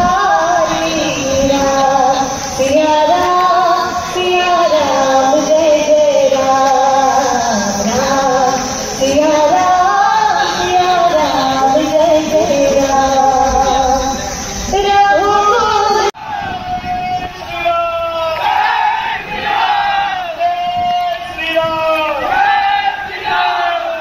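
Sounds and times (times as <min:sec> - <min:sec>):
woman singing gliding melody: 0:00.0 - 0:16.2.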